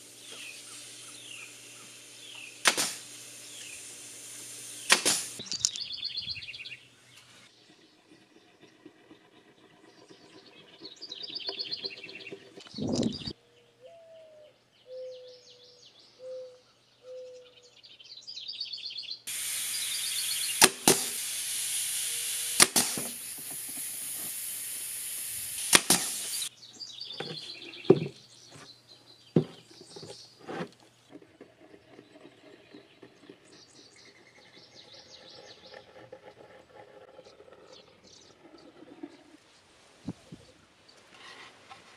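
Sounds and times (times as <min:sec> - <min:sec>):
loud air hiss: 0:00.0 - 0:05.4, 0:19.3 - 0:26.5
birds chirping: 0:00.0 - 0:39.7
nail gun shots: 0:02.4 - 0:05.4, 0:19.3 - 0:26.5.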